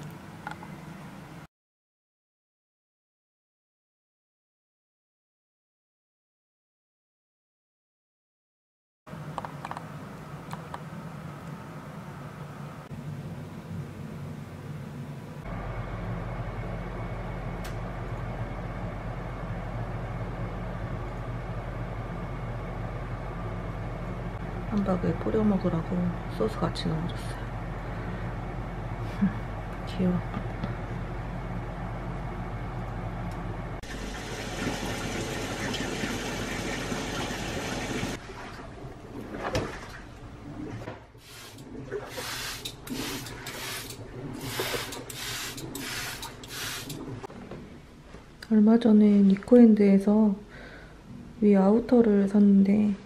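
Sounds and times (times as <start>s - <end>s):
low mechanical hum: 0.0s - 1.5s, 9.1s - 53.0s
washing machine churning water: 33.8s - 47.4s.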